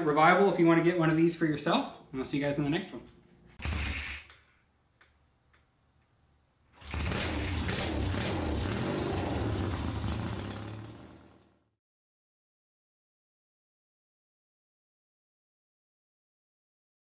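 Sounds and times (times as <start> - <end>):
engine running steadily: 6.8 - 11.6.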